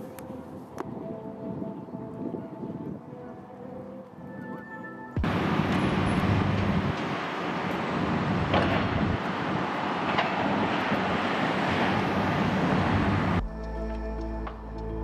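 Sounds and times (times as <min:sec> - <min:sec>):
wind buffeting the microphone: 0:00.0 - 0:03.4, 0:05.2 - 0:13.5
street traffic: 0:05.2 - 0:15.0.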